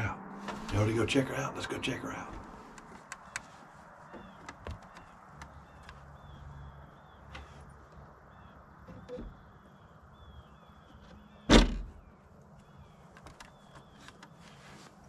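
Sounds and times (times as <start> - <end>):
light taps and clicks: 4.1 - 6.3.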